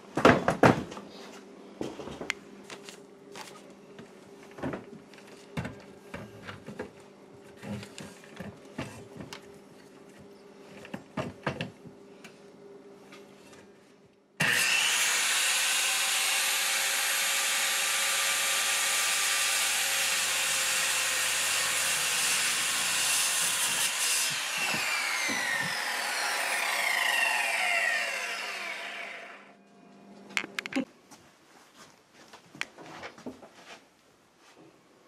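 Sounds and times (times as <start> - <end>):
circular saw cutting into wall: 14.4 - 29.5.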